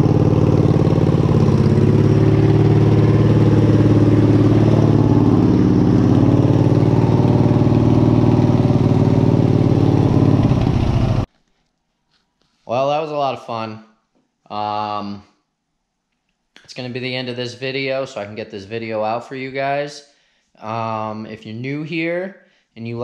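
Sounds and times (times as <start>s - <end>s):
garden tractor engine running: 0.0s - 11.3s.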